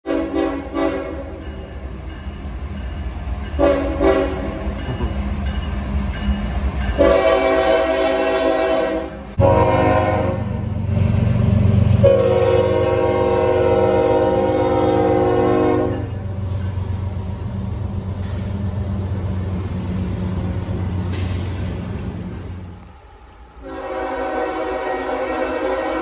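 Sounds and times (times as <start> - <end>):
locomotive air horn: 0.0 - 1.4, 3.6 - 4.6, 7.0 - 10.6, 12.0 - 16.2, 23.6 - 26.0
locomotive rumble: 0.7 - 25.8.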